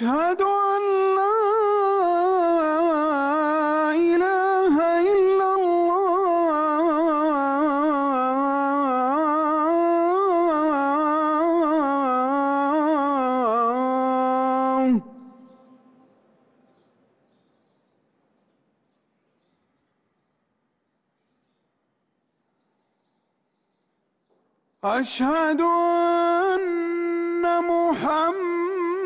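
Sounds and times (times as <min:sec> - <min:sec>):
man chanting call to prayer: 0:00.0 - 0:16.2, 0:24.8 - 0:29.0.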